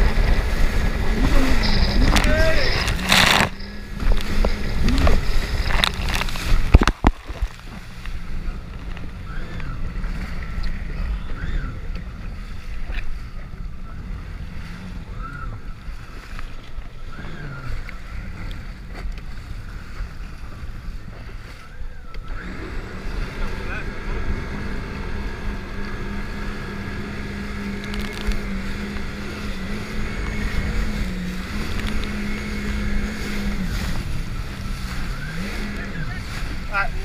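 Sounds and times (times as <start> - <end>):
jet ski engine hum: 0.0 - 37.0
water rushing: 0.0 - 37.0
water splashing: 0.0 - 37.0
wind on microphone: 0.0 - 37.0.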